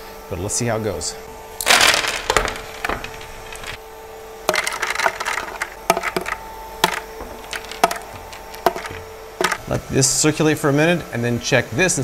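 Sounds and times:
steady hum: 0:01.1 - 0:10.0
ice cubes clunking into plastic: 0:01.6 - 0:03.8, 0:04.5 - 0:09.6.

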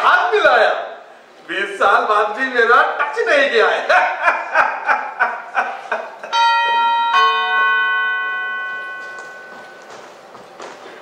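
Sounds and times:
doorbell chime: 0:06.3 - 0:10.1.

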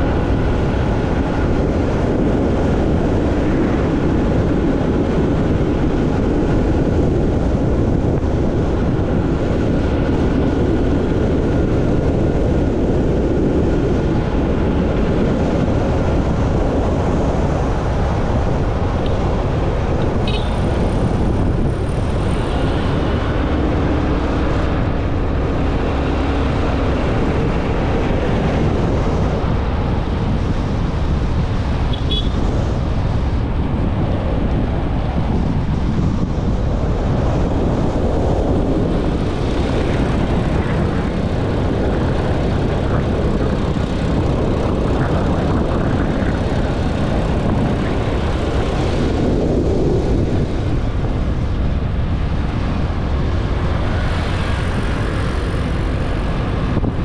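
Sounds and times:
wind buffeting microphone: 0:00.0 - 0:57.0
motorcycle engine: 0:08.3 - 0:34.5.

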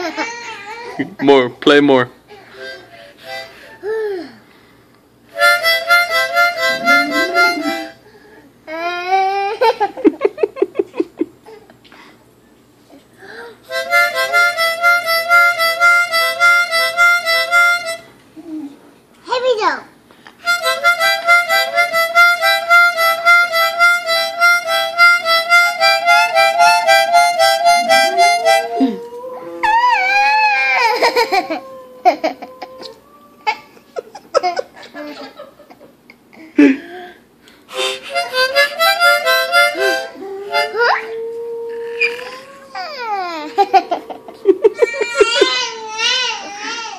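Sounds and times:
harmonica playing: 0:02.4 - 0:04.0, 0:05.3 - 0:08.0, 0:13.6 - 0:18.1, 0:20.4 - 0:29.8, 0:37.7 - 0:42.6
dog howling: 0:06.6 - 0:07.9, 0:26.3 - 0:33.8, 0:39.8 - 0:45.0
people laughing: 0:06.7 - 0:07.9, 0:09.6 - 0:11.4, 0:30.7 - 0:36.0, 0:43.5 - 0:45.7.

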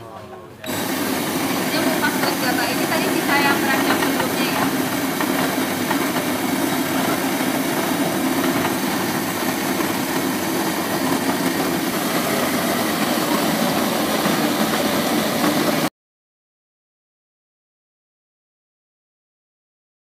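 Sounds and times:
rice milling machine hum: 0:00.6 - 0:15.9.

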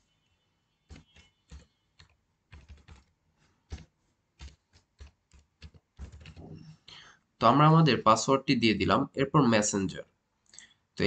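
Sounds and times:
typing on computer keyboard: 0:00.9 - 0:06.5.

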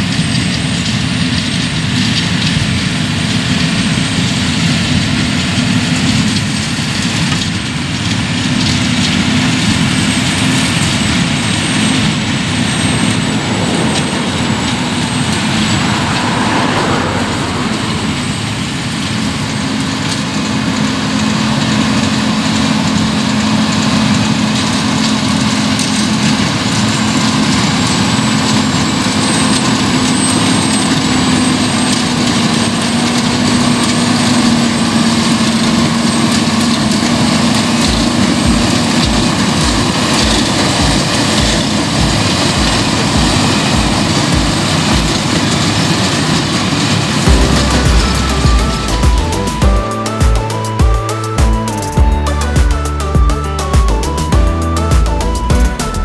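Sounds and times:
tractor diesel engine running: 0:00.0 - 0:56.0
regular low thuds: 0:47.3 - 0:55.9.

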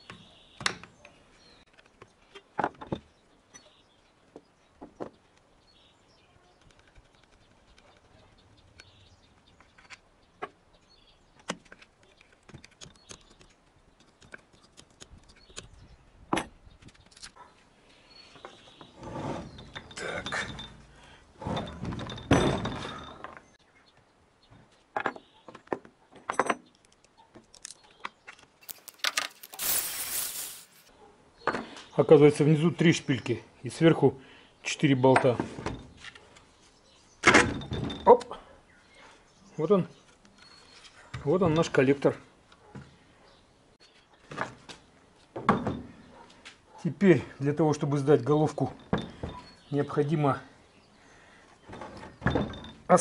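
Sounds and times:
metal scraping: 0:28.6 - 0:30.9.

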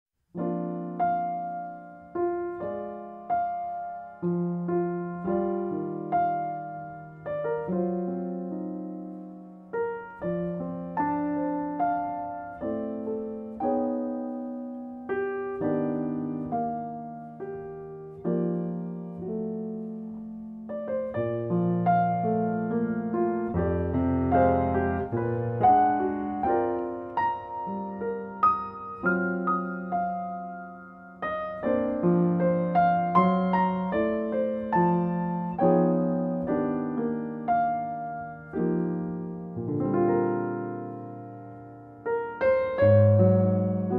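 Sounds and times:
solo piano music: 0:00.2 - 0:43.9.

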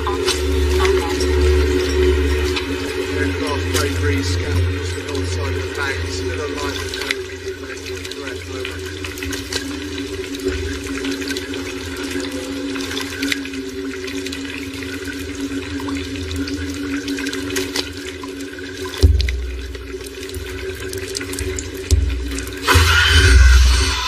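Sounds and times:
low drone: 0:00.0 - 0:14.0
running water: 0:00.0 - 0:24.0.

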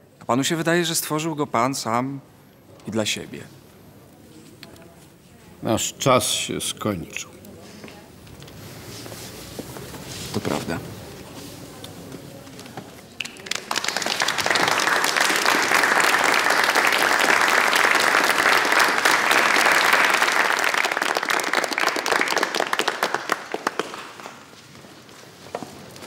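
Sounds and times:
audience applauding: 0:13.2 - 0:24.6.

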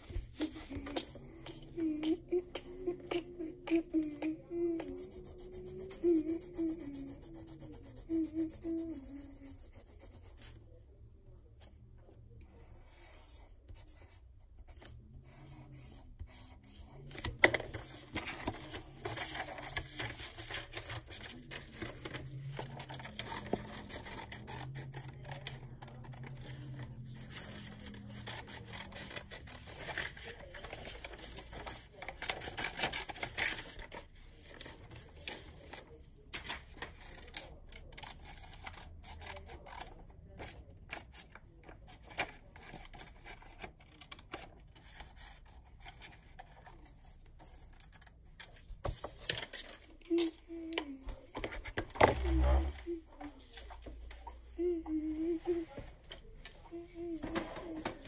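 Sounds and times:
paper rustling on wooden desk: 0:17.1 - 0:39.6.

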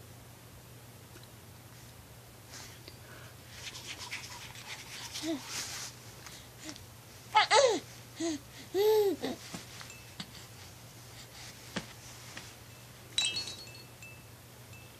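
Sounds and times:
baby cooing: 0:07.4 - 0:07.8, 0:08.8 - 0:09.4
chiming jingle: 0:12.7 - 0:14.9.

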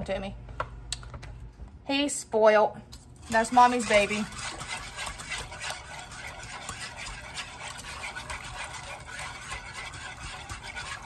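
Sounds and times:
whisk scraping a metal pot: 0:03.2 - 0:11.0.

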